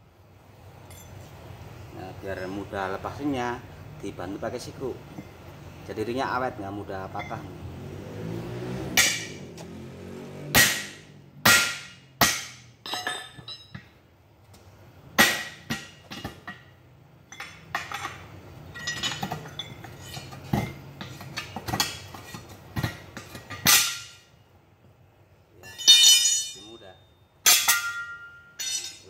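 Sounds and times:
metal-on-metal strikes and clanks: 8.9s - 9.5s, 10.5s - 13.9s, 15.2s - 24.3s, 25.6s - 29.0s.

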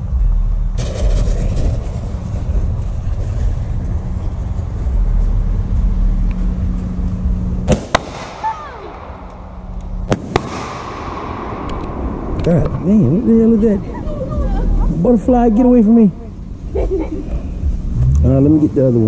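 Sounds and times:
firework fuse rumbling: 0.0s - 19.0s
firework bangs: 0.8s - 4.8s, 7.6s - 13.6s.

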